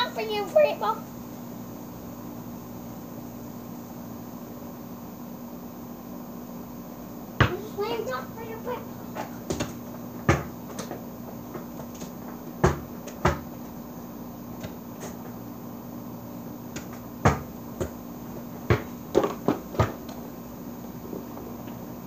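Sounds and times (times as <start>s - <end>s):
basketball bouncing on hard surface: 7.4s - 7.8s, 9.0s - 13.8s, 14.5s - 15.4s, 16.7s - 20.3s.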